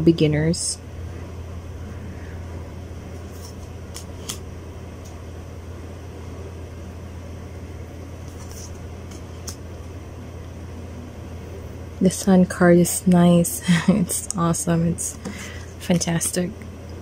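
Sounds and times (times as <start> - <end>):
steady low hum: 0.0 - 17.0
cards swishing and clicking: 3.2 - 4.4, 8.2 - 9.6.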